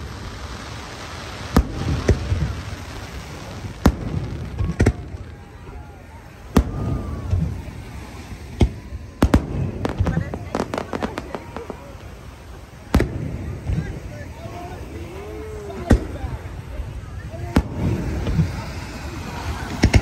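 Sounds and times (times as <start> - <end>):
firework shells bursting: 0.0 - 5.3, 8.4 - 14.0, 17.5 - 20.0.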